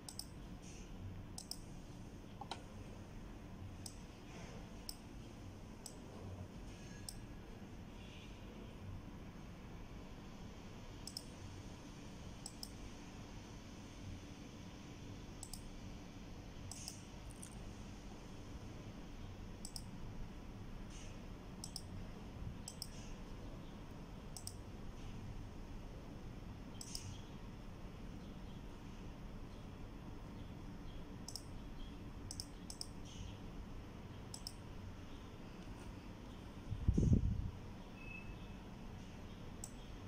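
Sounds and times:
computer mouse button clicking: 0.0s - 0.3s, 1.4s - 1.6s, 11.1s - 11.3s, 15.4s - 15.6s, 16.7s - 17.5s, 21.6s - 21.9s, 22.7s - 23.0s, 26.8s - 27.2s, 32.3s - 33.0s, 34.3s - 34.6s
low room hum: 0.0s - 40.0s.

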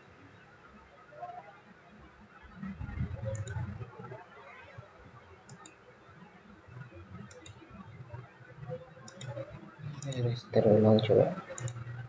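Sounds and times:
low muffled rumble: 2.6s - 4.0s
computer mouse clicks: 3.2s - 3.7s, 5.4s - 5.8s, 7.3s - 7.6s, 9.0s - 10.3s, 11.5s - 12.0s.

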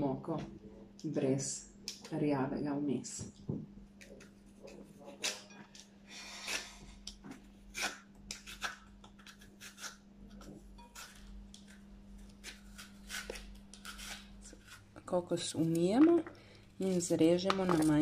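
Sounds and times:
vegetable peeler scraping: 7.7s - 14.8s.

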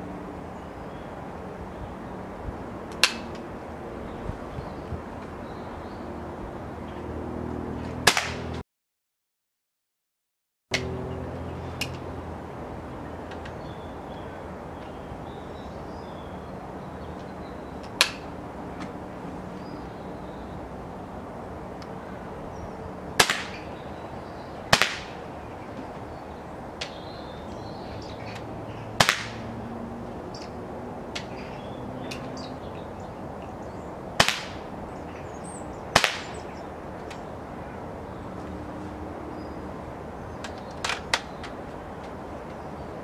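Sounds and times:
air pistol shots: 8.0s - 8.5s, 23.2s - 23.6s, 24.7s - 25.2s, 29.0s - 29.5s, 34.2s - 34.6s, 36.0s - 36.4s.

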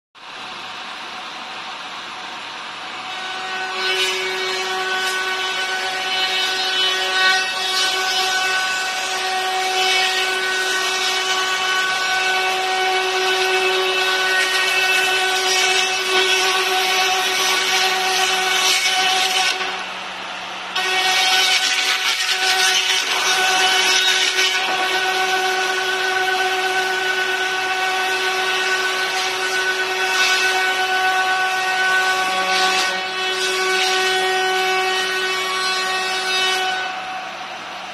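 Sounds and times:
router spindle whine: 0.2s - 33.4s
router bit cutting wood: 2.2s - 19.9s, 20.7s - 37.3s.

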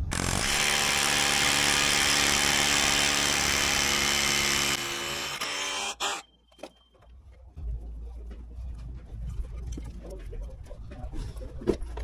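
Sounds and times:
rotary hammer drill into concrete: 0.0s - 6.2s.

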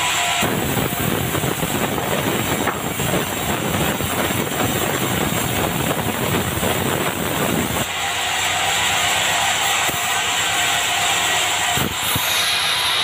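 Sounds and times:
band sawmill sawing timber: 0.0s - 13.0s.

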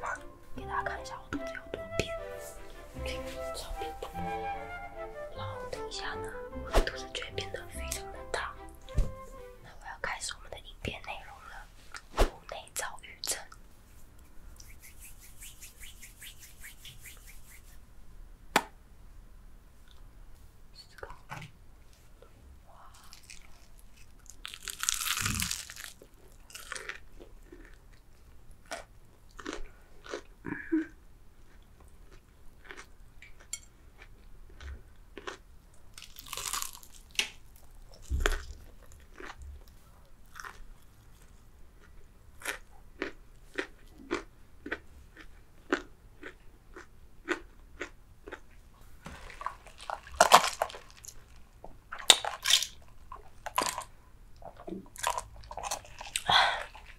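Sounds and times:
sipping through a straw: 14.6s - 17.8s
crunching fried chicken: 23.0s - 28.0s, 31.5s - 48.5s, 49.2s - 53.9s
crunchy chewing: 23.0s - 30.3s, 31.4s - 48.6s, 49.2s - 56.9s.

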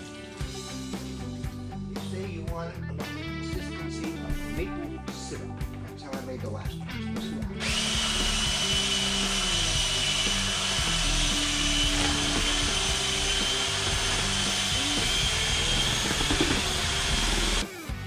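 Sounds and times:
electric drill mixing mud: 7.3s - 18.0s.

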